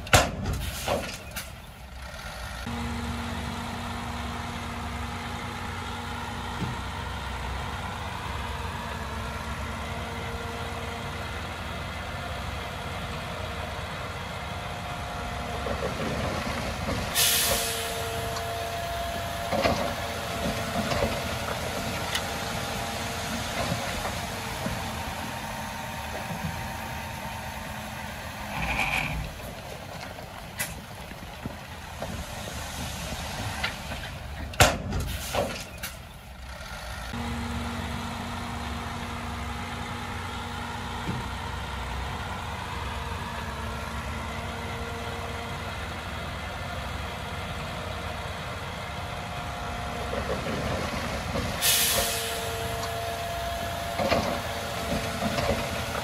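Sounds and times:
heavy machinery diesel engine: 0:00.0 - 0:56.0
burst of hiss: 0:17.2 - 0:17.8, 0:51.6 - 0:52.4.

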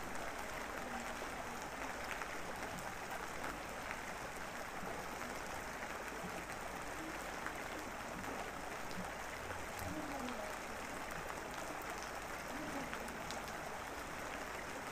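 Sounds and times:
steady rain hiss: 0:00.0 - 0:14.9
raindrop ticks: 0:11.4 - 0:13.6.

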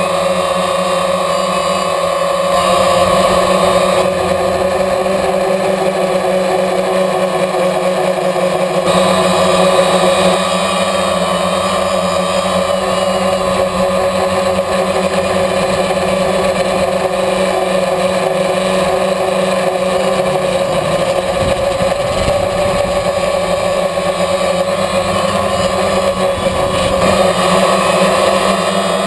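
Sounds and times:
drone propellers buzzing: 0:00.0 - 0:29.0
wind noise on microphone: 0:21.0 - 0:28.2.

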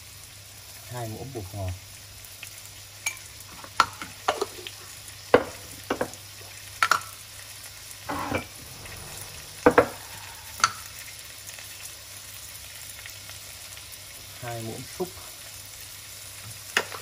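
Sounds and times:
vegetables sizzling in a wok: 0:00.0 - 0:17.0
short scrape: 0:08.0 - 0:11.3.

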